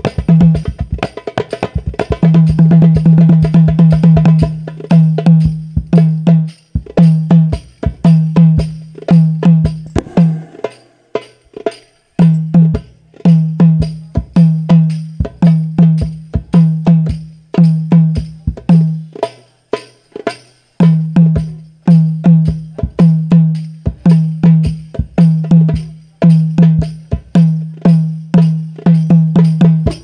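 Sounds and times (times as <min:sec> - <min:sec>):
frame drums playing rhythm: 0:00.0 - 0:30.0
deep ringing low drum notes: 0:09.9 - 0:11.4.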